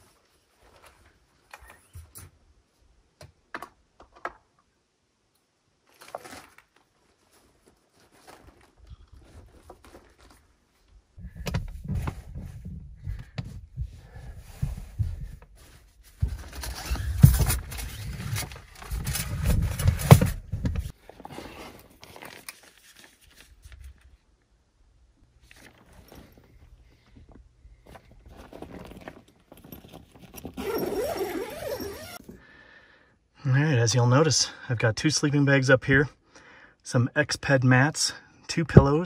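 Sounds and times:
knocks and thumps in tent: 0:11.2 - 0:20.9
low rumble from tent platform: 0:11.2 - 0:20.9
fabric and bedding rustling: 0:25.4 - 0:32.2.

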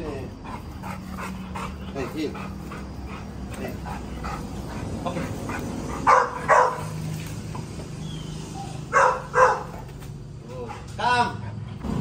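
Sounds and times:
dog barking: 0:05.5 - 0:07.0, 0:08.6 - 0:09.9.

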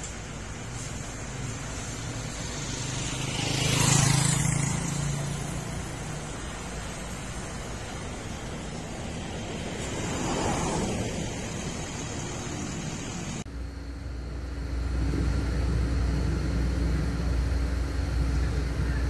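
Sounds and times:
traffic hum: 0:00.0 - 0:19.0
motorcycle passing by: 0:00.8 - 0:13.4.

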